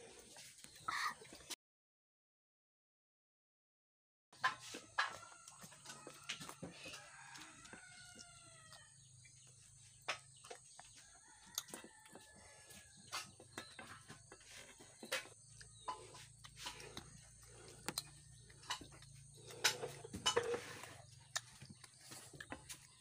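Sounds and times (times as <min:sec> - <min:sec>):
rooster crowing: 0:05.2 - 0:08.9.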